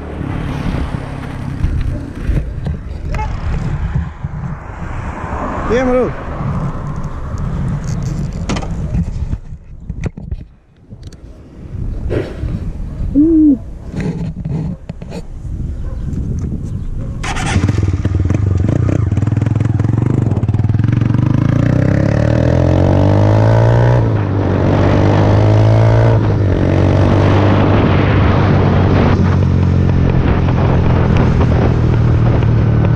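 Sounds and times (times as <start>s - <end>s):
motorcycle engine accelerating: 17.2s - 32.9s.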